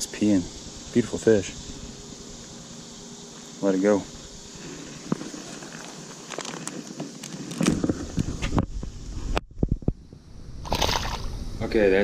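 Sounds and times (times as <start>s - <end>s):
microphone handling rumble: 7.6s - 11.6s.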